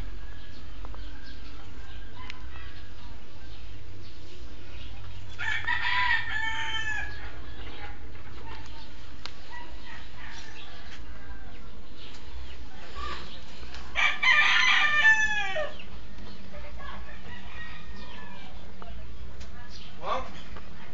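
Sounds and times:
rooster crowing: 5.4 - 7.4, 13.9 - 15.8, 17.0 - 18.6.

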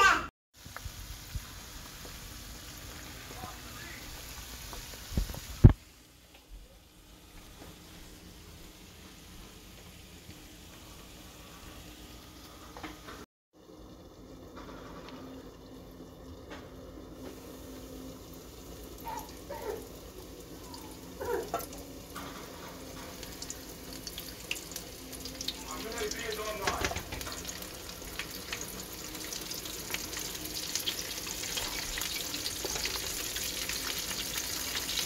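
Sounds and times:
chicken crackling in hot oil: 0.6 - 5.9, 17.3 - 35.0
potatoes sizzling in oil: 0.6 - 6.0, 17.2 - 35.0.

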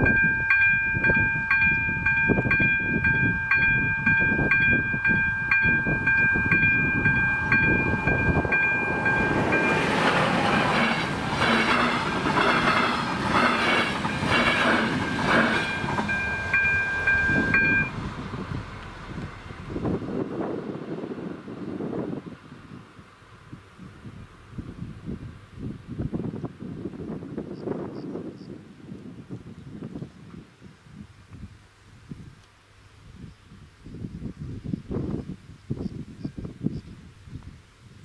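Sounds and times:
crossing warning bell ringing: 0.0 - 19.6
loud noisy rush: 3.2 - 21.2.

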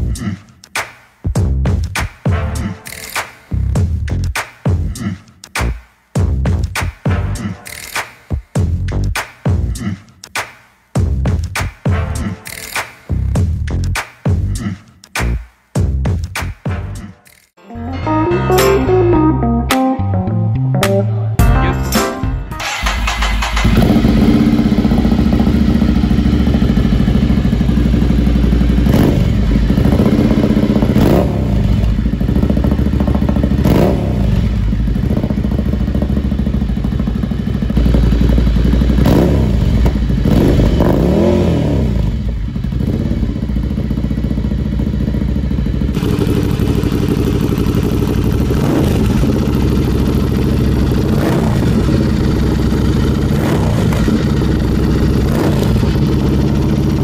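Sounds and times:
motorcycle engine idling: 22.6 - 57.0.

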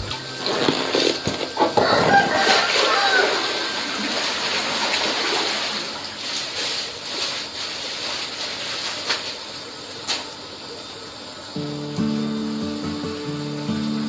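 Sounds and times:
water splashing in a pond: 0.0 - 10.2.

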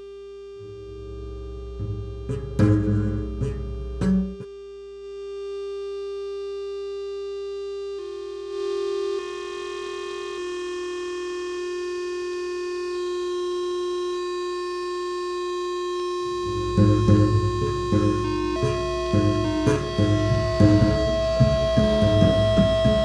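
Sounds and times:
synthesizer drone: 0.6 - 4.4, 15.6 - 23.0.

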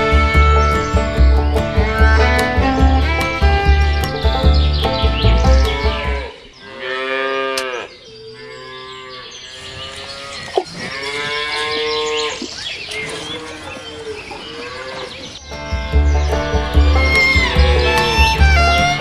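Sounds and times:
cows mooing: 5.7 - 12.5, 13.1 - 15.2.

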